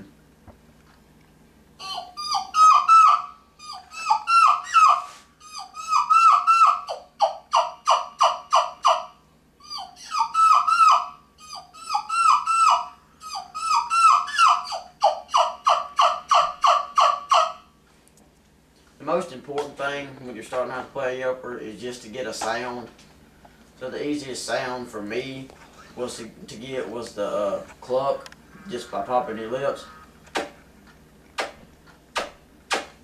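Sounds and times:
turkey call whistled notes: 1.8 - 17.7.

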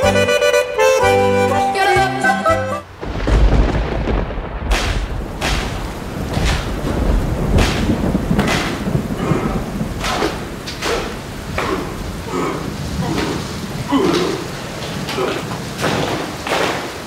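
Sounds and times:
heavy thuds: 3.0 - 12.1.

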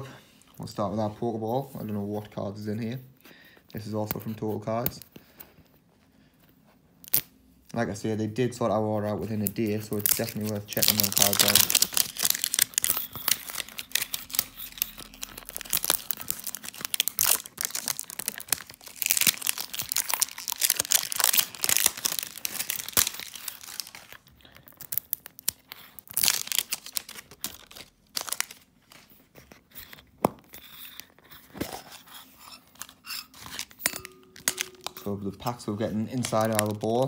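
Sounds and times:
plastic wrapping crinkling: 9.1 - 37.0
metal tin being opened: 32.8 - 35.2.

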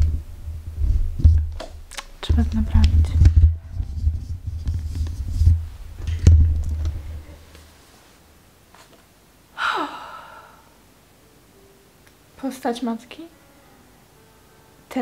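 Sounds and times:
short sigh: 9.6 - 10.8.

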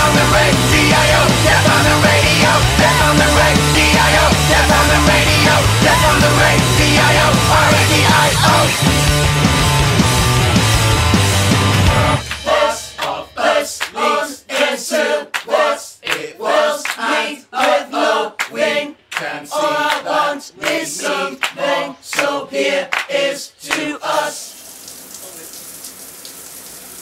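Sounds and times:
group singing a cappella: 0.0 - 8.9, 12.1 - 24.6.

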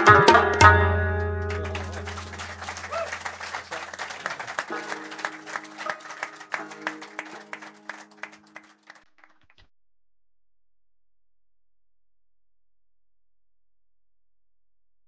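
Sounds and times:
rapid sharp percussion: 0.0 - 7.5
held musical notes: 0.0 - 8.8.

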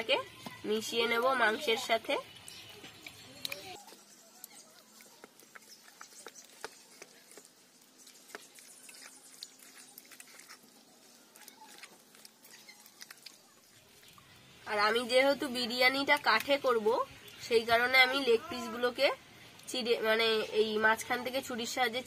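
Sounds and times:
hand squelching meat in marinade: 3.0 - 14.1.

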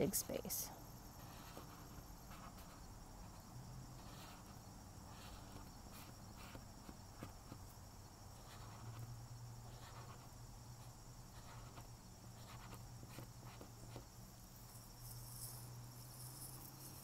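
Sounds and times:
marker rubbing on paper: 1.2 - 3.4, 4.0 - 7.8, 8.4 - 14.1.

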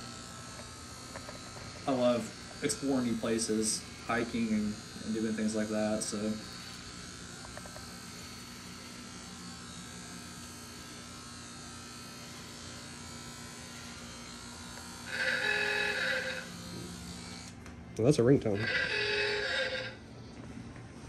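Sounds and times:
electric hair clippers buzzing: 0.0 - 20.3
phone ringtone: 15.1 - 16.5, 18.6 - 20.0.

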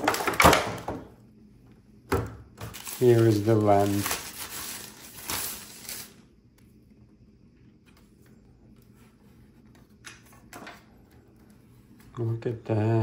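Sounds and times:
plastic wrapping rustling: 2.6 - 6.3.

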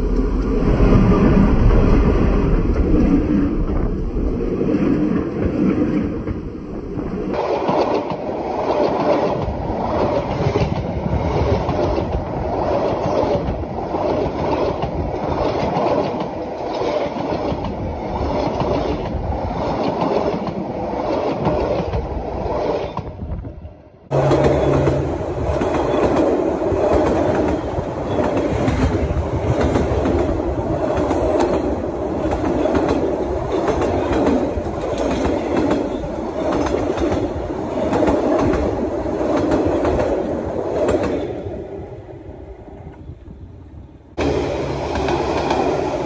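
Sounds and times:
wheels clacking over rail joints: 7.3 - 23.2.

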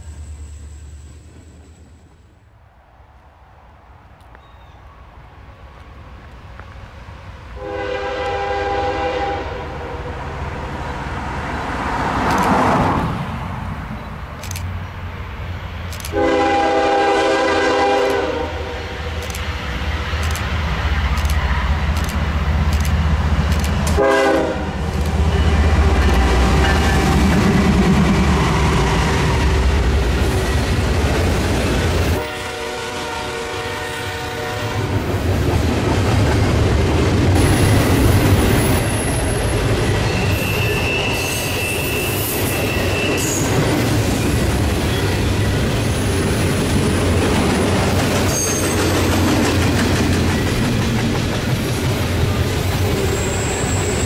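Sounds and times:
diesel locomotive rumble: 5.4 - 54.0
locomotive air horn blasts: 7.6 - 10.1, 16.1 - 19.2, 23.9 - 25.7, 32.1 - 35.0
train cars clickety-clack: 11.8 - 13.0, 15.8 - 18.4, 19.0 - 54.0
high wheel squeal: 37.4 - 46.4, 48.2 - 49.1, 52.8 - 54.0.

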